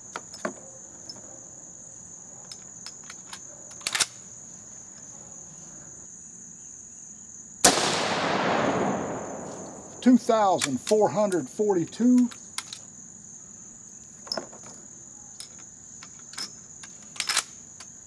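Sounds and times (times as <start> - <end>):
high insect trill: 0.0 - 18.0
rifle shot with echo: 7.6 - 10.0.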